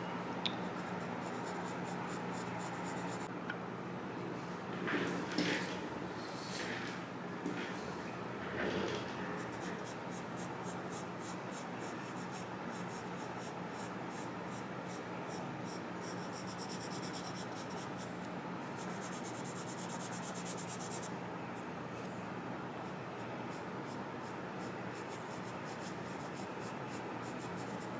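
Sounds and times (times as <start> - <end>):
charcoal pencil scratching paper: 9.4 - 17.9, 18.8 - 21.1, 24.6 - 27.9.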